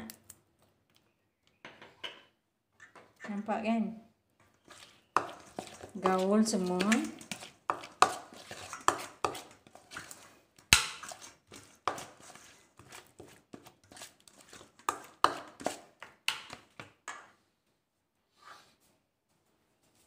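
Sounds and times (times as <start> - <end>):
metal spoon scraping steel bowl: 4.6 - 10.3, 10.9 - 15.8.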